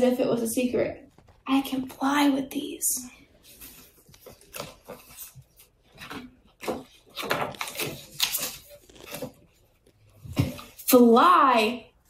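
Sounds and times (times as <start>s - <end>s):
book pages rustling: 3.4s - 10.8s.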